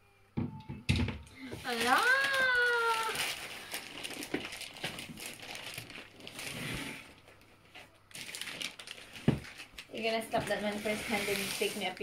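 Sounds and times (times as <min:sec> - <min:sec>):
plastic packaging crinkling: 0:01.4 - 0:12.0.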